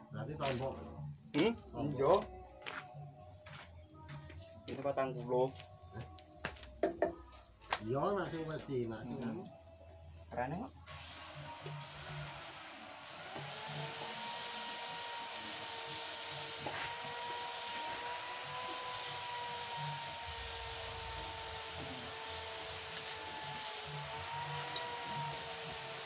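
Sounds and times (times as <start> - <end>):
motor whining: 10.9 - 26.0.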